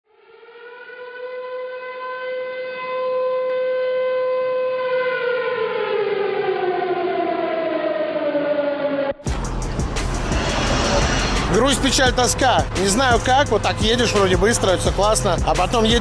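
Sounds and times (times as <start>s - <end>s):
air-raid siren: 0.1s - 11.8s.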